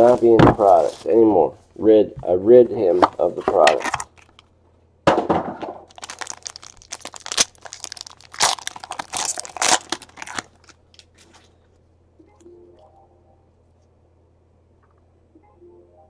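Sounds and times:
foil wrapper tearing and crinkling: 3.8 - 4.4, 5.9 - 11.2.

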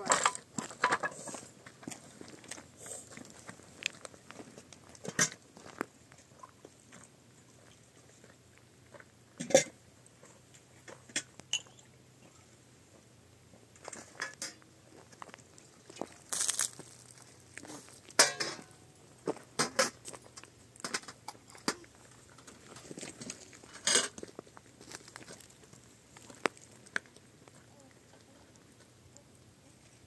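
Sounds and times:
dishes clinking and knocking: 18.2 - 18.7.

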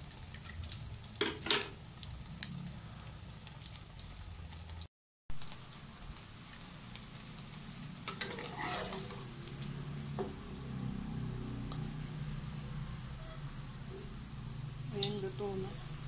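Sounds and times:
fritters sizzling in hot oil: 0.0 - 16.0
spatula scraping pan: 8.1 - 9.4.

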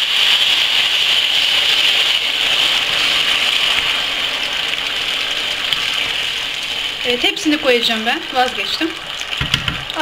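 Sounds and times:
tomatoes sizzling in hot oil: 0.0 - 10.0
wooden spoon stirring: 0.1 - 10.0.

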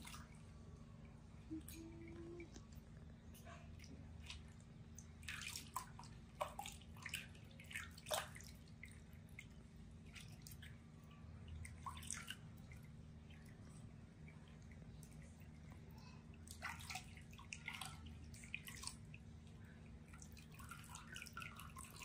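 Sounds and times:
faint steady hum: 0.0 - 22.0
water splashing into plastic basin: 3.8 - 9.5, 11.6 - 12.4, 16.5 - 19.1.

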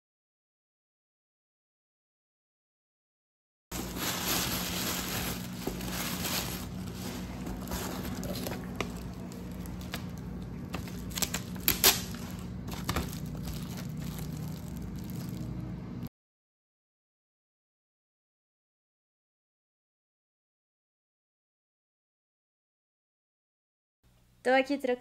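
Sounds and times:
plastic wrapping crinkling: 3.7 - 15.7.

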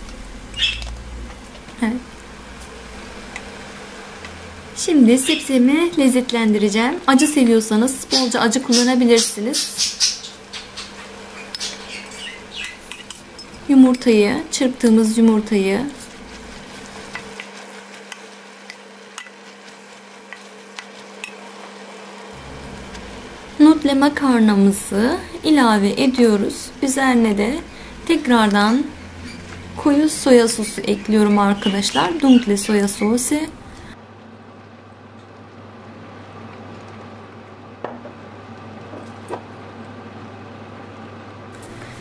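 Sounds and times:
steady low hum: 0.0 - 42.0
food sizzling in a wok: 15.8 - 24.2.

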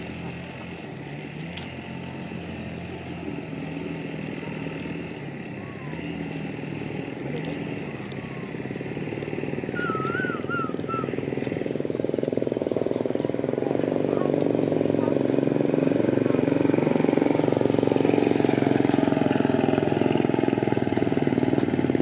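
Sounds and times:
motor engine running: 0.0 - 22.0
bird warbling call: 3.4 - 11.2.

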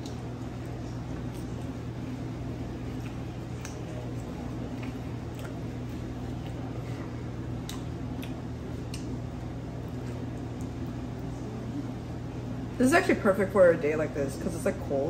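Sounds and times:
person chewing: 0.0 - 11.3
low room hum: 0.0 - 15.0.

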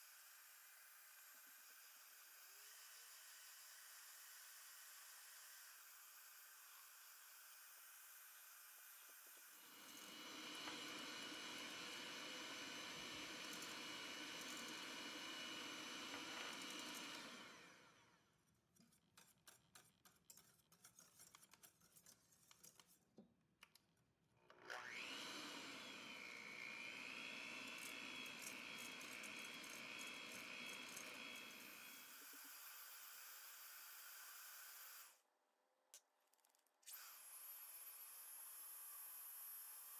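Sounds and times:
stand mixer motor whining: 9.5 - 18.2, 24.6 - 32.6.

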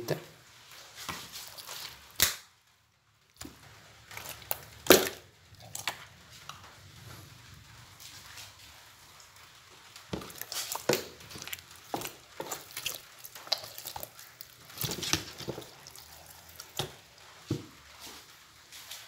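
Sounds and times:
wet slapping of fish: 3.4 - 6.5, 10.0 - 19.0.

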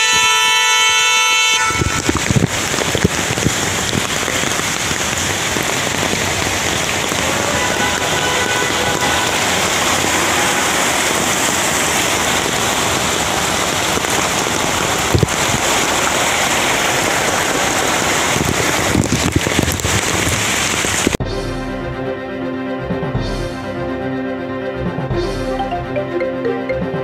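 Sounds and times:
heavy rain: 0.0 - 21.2
rushing floodwater: 0.0 - 21.2
music: 21.2 - 27.0.

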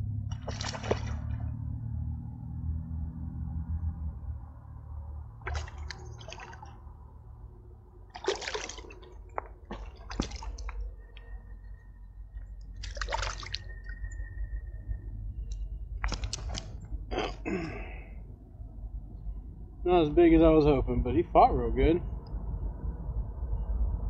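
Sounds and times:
steady low rumble: 0.0 - 24.0
water splashing and dripping: 0.3 - 1.6, 5.4 - 6.9, 8.1 - 14.2, 15.5 - 16.8.

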